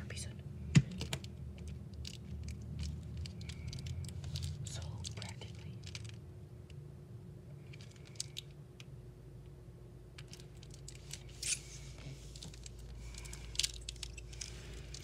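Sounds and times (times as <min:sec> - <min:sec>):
steady low hum: 0:00.0 - 0:15.0
handling clicks and rustles: 0:00.8 - 0:06.2, 0:10.1 - 0:15.0.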